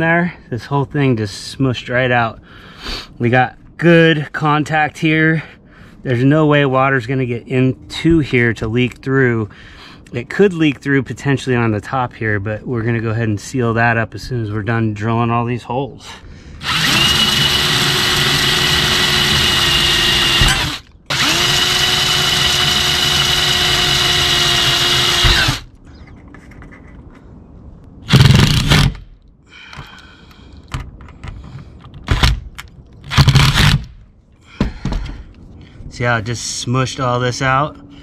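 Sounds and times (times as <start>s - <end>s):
cordless drill boring into metal: 16.6s - 25.7s
cordless driver driving screws: 16.6s - 25.7s.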